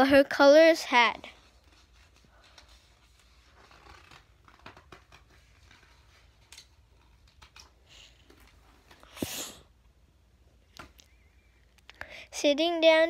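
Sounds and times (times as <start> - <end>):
paper pages rustling: 1.2 - 9.3.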